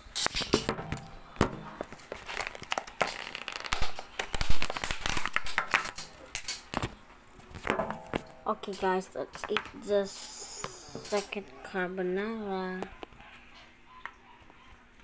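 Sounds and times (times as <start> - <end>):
close rustling and crinkling: 1.8 - 5.5.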